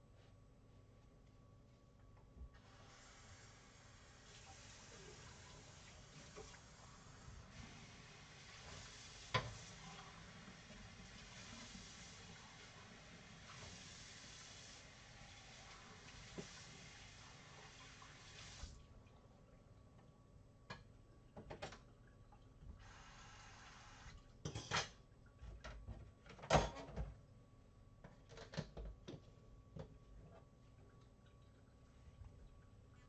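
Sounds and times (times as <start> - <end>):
kitchen tap running: 2.8 - 18.8.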